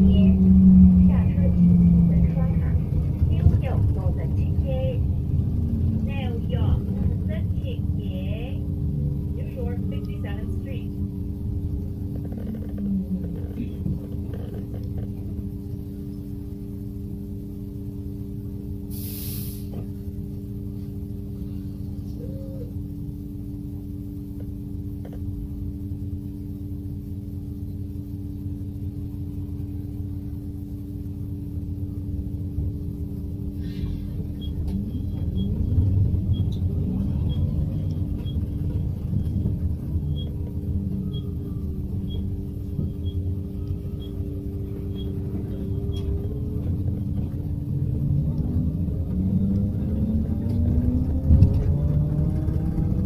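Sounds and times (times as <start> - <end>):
bus hum and rumble: 0.0 - 53.0
air brake hiss: 18.9 - 19.8
electric drive whine: 19.8 - 53.0.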